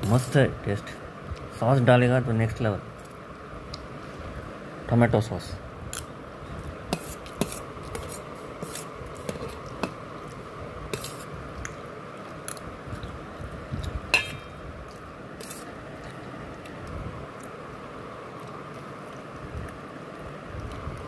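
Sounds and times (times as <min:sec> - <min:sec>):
metal spoon scraping steel plate: 0:14.2 - 0:14.5.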